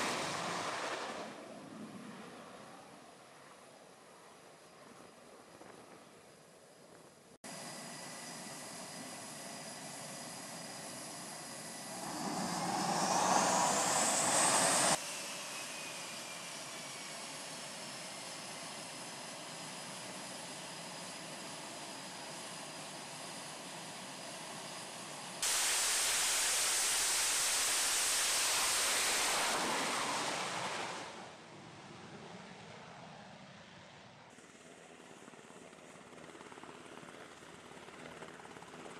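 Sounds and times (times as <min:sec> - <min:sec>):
jet roaring at full power: 0:00.0 - 0:02.2, 0:07.5 - 0:19.3, 0:25.4 - 0:31.9
jet engines whining: 0:07.5 - 0:32.2.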